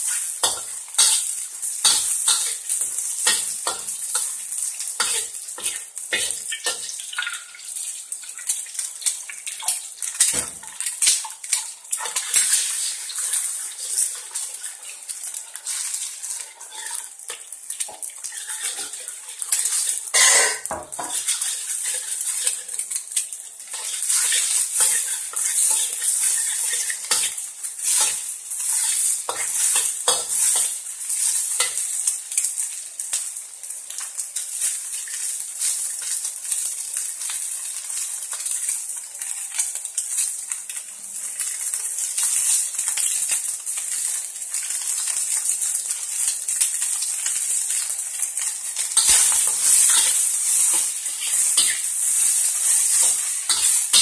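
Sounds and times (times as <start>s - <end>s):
metal spatula scraping a pan: 0.0s - 7.0s, 12.0s - 14.7s, 15.3s - 17.1s, 18.2s - 23.0s, 23.7s - 32.1s, 48.4s - 54.0s
food sizzling in hot oil: 0.0s - 54.0s
metal clattering on a pan: 0.4s - 2.6s, 53.0s - 54.0s.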